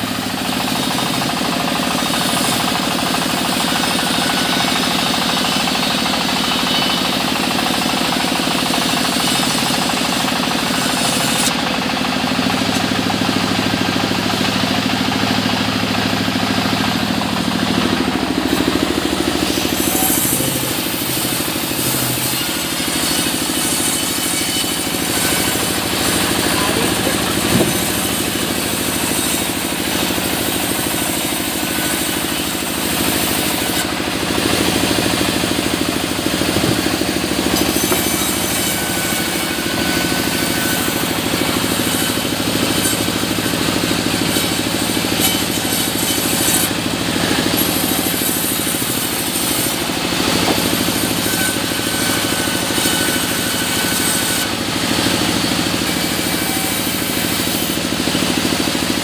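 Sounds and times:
band saw cutting logs: 0.0 - 59.0
machine hum: 11.4 - 45.0.

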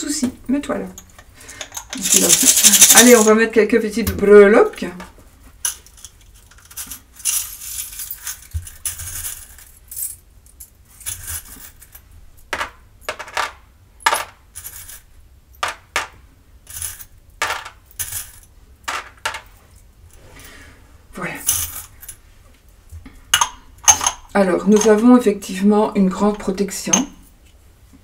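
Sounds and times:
metal charms clinking: 1.6 - 3.3.

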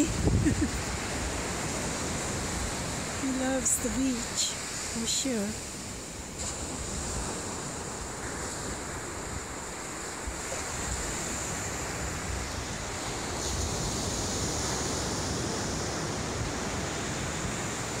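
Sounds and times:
wind on the microphone: 0.0 - 3.6
ocean surf washing: 0.0 - 18.0.

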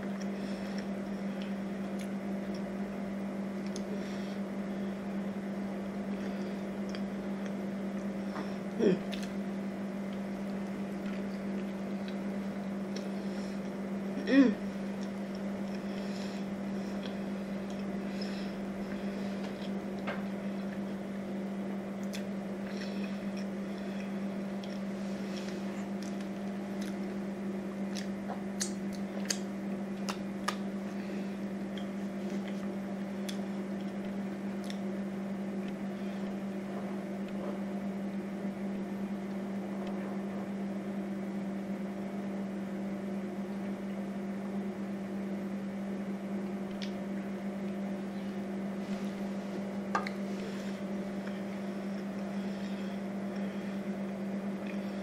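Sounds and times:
low mechanical hum: 0.0 - 55.0
mouth chewing clicks and smacks: 27.9 - 30.6.

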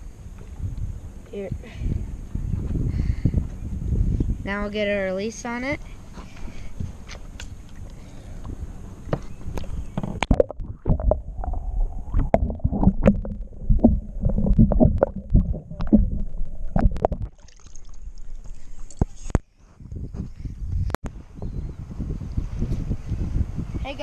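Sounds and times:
wind: 0.0 - 24.0
muffled underwater gurgling: 10.0 - 17.4
water lapping: 10.6 - 19.3.

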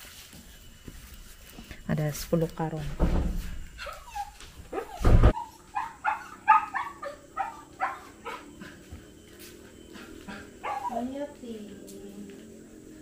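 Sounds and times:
dog yelping: 3.8 - 9.0, 10.0 - 11.1
dog barking: 4.7 - 8.6, 10.3 - 11.1.

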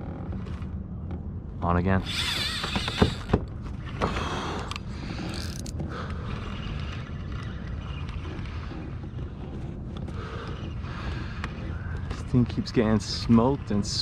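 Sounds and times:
wind and water rumble: 0.0 - 14.0
fishing reel clicking and whirring: 2.0 - 3.4, 4.7 - 8.7.

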